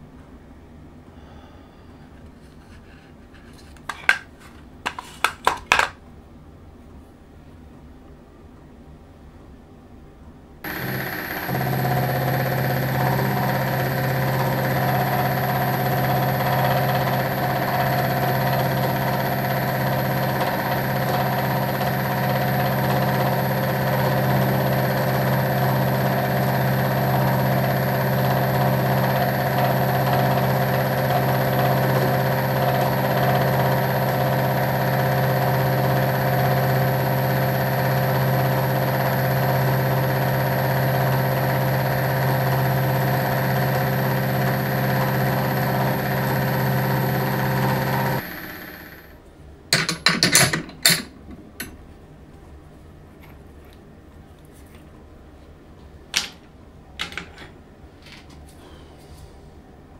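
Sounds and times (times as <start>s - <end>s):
high whine of milling machine: 10.7s - 49.2s
milling machine running: 10.7s - 49.2s.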